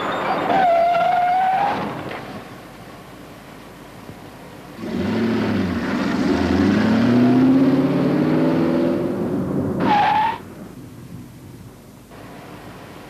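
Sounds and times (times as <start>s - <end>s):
tyre screech: 0.0s - 2.0s, 9.8s - 10.4s
car engine accelerating: 4.8s - 9.8s.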